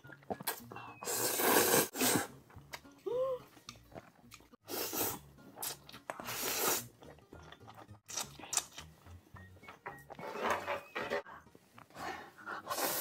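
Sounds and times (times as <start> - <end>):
slurping noodles: 0.3 - 2.4, 3.9 - 7.1, 12.6 - 13.0.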